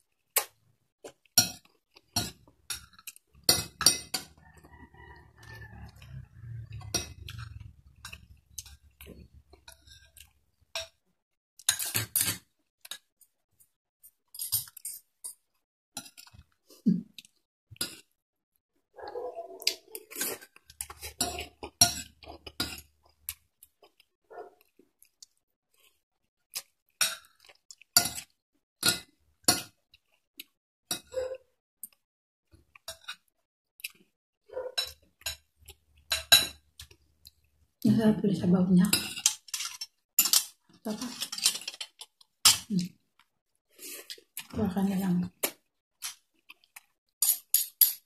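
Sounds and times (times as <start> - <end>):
soft chewing: 12.7 - 18.2, 19.0 - 28.4, 29.7 - 37.8, 39.0 - 44.6, 45.2 - 47.8
cutlery clinking on plate: 39.0 - 42.7, 47.2 - 48.0.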